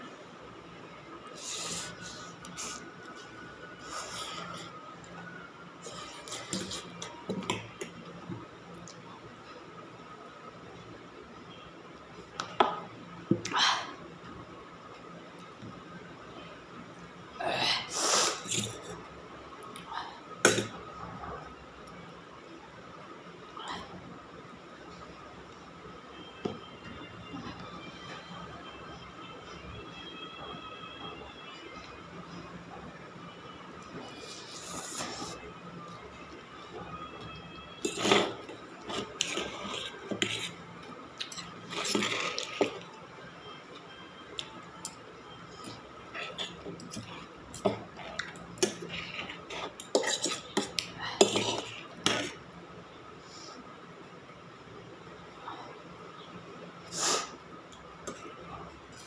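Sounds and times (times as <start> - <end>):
cutlery clinking on metal bowl: 49.7 - 52.2.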